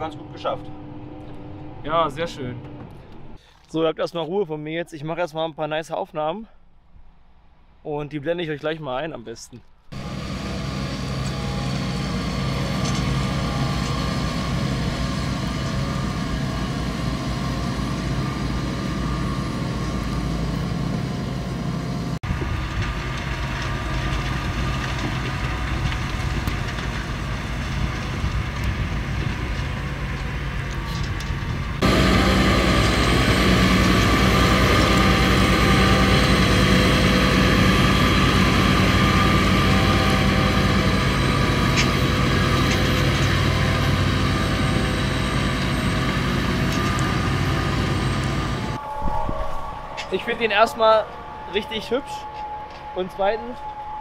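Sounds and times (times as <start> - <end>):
tractor diesel engine running: 9.9 - 48.9.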